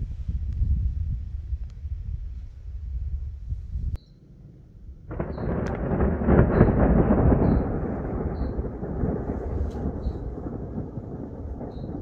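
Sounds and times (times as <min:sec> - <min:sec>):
thunder rumbling: 0:00.0 - 0:12.0
faint high chirp: 0:04.0 - 0:04.3
thunder clap: 0:04.4 - 0:12.0.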